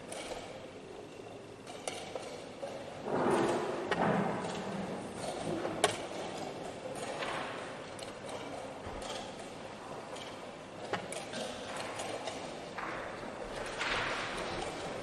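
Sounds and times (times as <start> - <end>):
room noise: 0.0 - 15.0.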